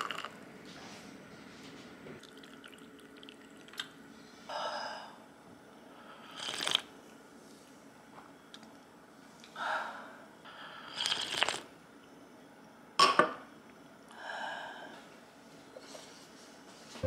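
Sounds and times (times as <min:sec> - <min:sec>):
sipping hot tea: 0:06.3 - 0:06.9, 0:10.9 - 0:11.7.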